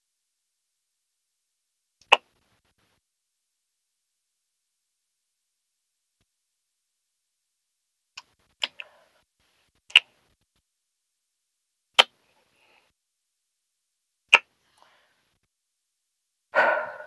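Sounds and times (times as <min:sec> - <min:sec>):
kissing lip smacks: 0:02.0 - 0:02.2, 0:08.2 - 0:08.8, 0:09.9 - 0:10.1.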